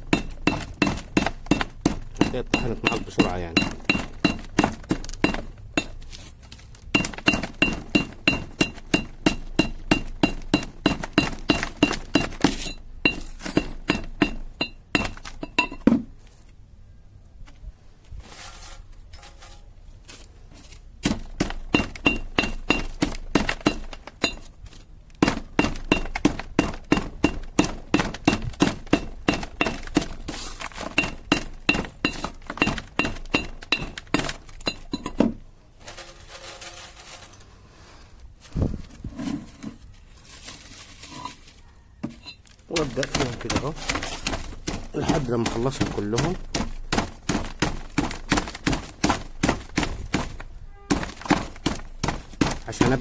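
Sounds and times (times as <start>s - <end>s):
metal pestle pounding in mortar: 0.0s - 6.0s, 6.9s - 16.0s, 21.0s - 24.5s, 25.2s - 35.2s, 42.1s - 53.0s.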